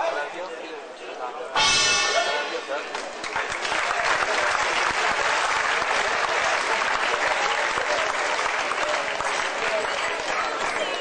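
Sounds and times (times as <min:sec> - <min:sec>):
crowd applauding: 0:02.9 - 0:11.0.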